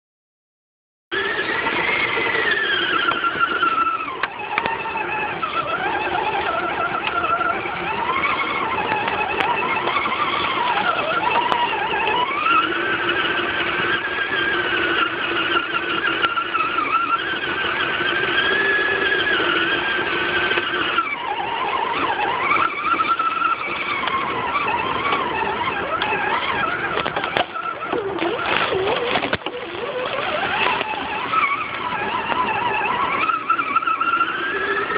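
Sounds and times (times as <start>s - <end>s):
electric motor and gear whine: 1.1s - 34.9s.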